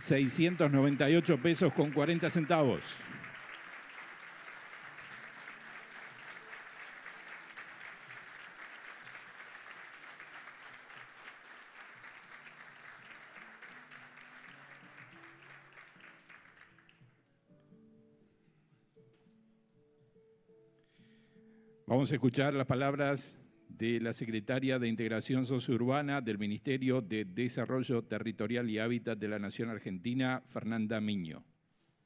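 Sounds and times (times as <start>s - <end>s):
audience applauding: 0.0s - 17.1s
quiet music: 0.0s - 31.4s.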